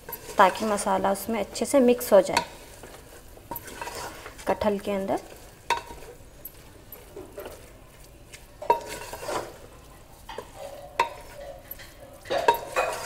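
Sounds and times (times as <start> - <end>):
wooden spatula scraping metal pot: 0.0 - 7.8, 8.4 - 13.0
pot ringing: 10.3 - 13.0.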